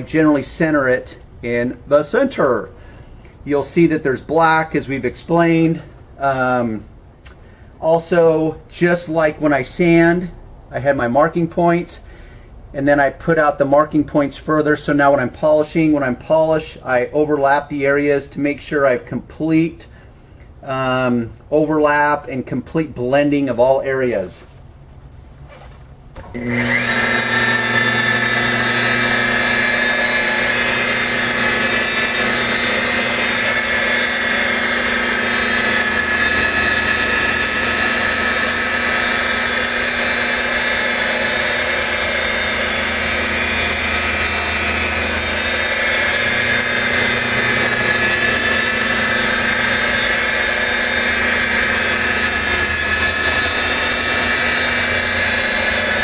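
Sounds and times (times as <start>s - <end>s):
rotary buffer whining: 26.2s - 56.0s.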